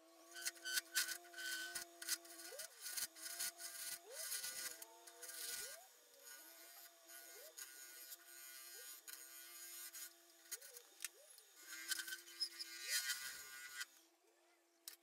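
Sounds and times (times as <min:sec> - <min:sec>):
gouge scraping on lathe: 0:00.3 - 0:10.8.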